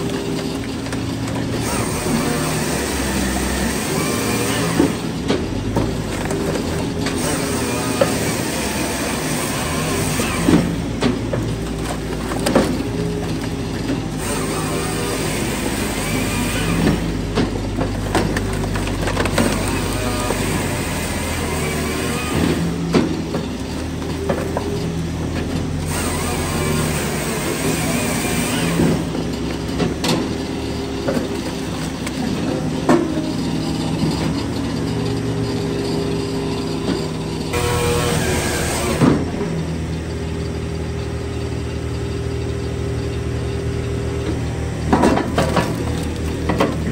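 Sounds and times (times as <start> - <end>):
firewood dropping onto conveyor: 0.0 - 34.4, 44.2 - 46.9
firewood processor engine humming: 0.0 - 46.9.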